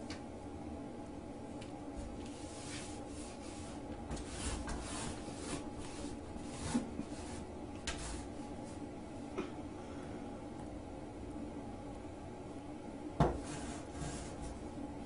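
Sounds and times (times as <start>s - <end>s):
rug scraping across tile floor: 2.0s - 8.8s, 13.3s - 14.6s.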